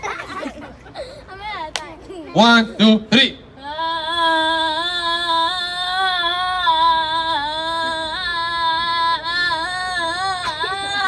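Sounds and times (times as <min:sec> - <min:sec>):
girl singing a long note: 0:03.6 - 0:11.0.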